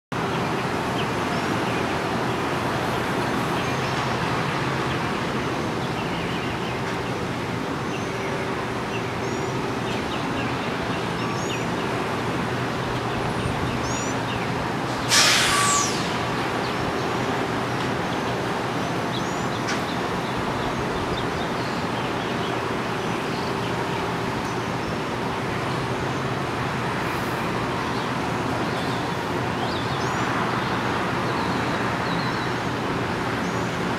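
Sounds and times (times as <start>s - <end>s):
city traffic hum: 0.1s - 33.9s
air brake hiss: 14.9s - 16.2s.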